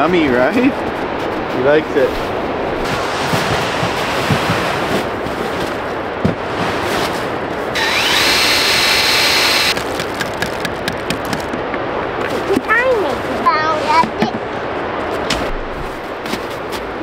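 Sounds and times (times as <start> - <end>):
power drill motor whine: 7.8 - 9.8.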